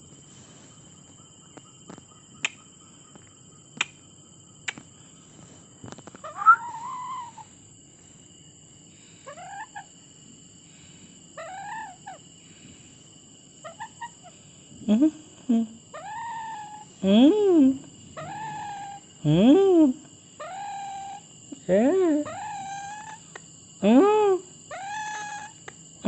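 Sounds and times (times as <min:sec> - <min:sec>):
parakeet chattering calls: 0:09.3 - 0:09.9, 0:18.2 - 0:19.1, 0:20.4 - 0:21.2, 0:22.2 - 0:23.2, 0:24.7 - 0:25.6.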